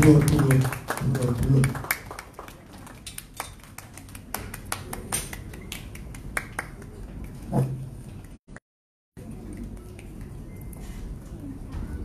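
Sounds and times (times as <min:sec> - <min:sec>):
audience hand claps: 0:00.0 - 0:07.5.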